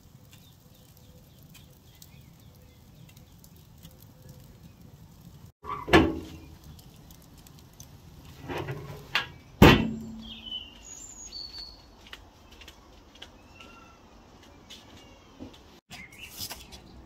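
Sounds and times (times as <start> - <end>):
birds chirping: 0.0 - 7.5, 8.9 - 17.0
metal grill lid clanging shut: 5.6 - 6.5, 8.4 - 10.4
loud thump: 9.6 - 10.3.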